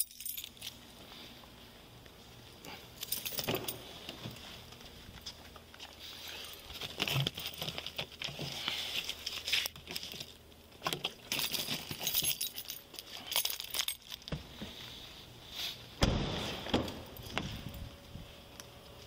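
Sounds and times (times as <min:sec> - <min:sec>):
objects clinking and clicking: 0:09.2 - 0:14.4.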